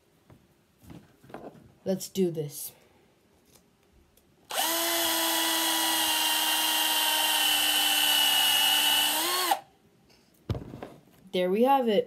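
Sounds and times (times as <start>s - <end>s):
cordless drill whining: 4.5s - 9.7s.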